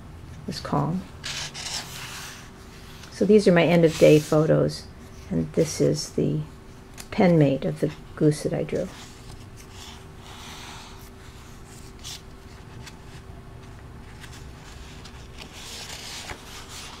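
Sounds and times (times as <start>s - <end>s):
faint steady hum: 0.0s - 17.0s
paper pages rustling: 1.2s - 4.6s, 11.2s - 17.0s.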